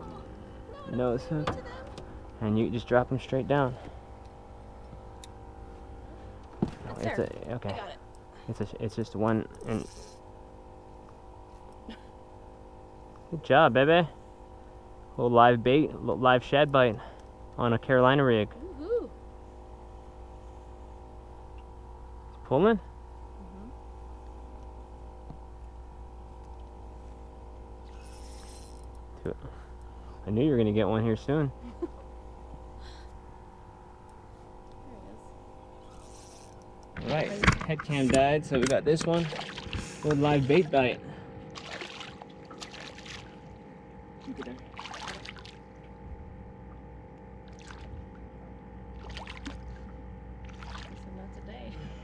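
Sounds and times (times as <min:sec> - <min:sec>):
boat motor humming: 0:00.0 - 0:52.0
fish splashing at water surface: 0:39.2 - 0:40.2, 0:41.5 - 0:43.4, 0:44.2 - 0:45.8, 0:47.4 - 0:47.9, 0:48.9 - 0:51.1.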